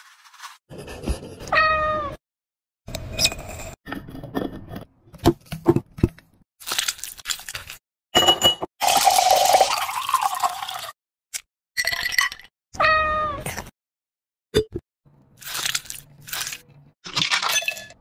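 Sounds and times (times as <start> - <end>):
cat meowing: 1.5 - 2.2, 12.8 - 13.4
glass clinking: 8.2 - 8.7
soda fizzing over ice: 8.8 - 10.9.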